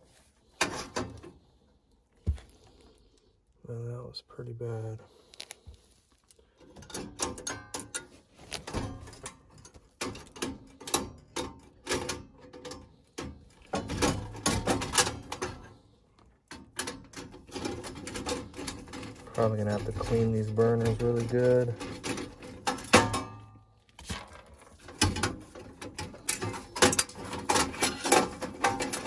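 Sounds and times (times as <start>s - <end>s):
metallic clicks and rattles: 6.6s - 23.5s, 24.2s - 29.0s.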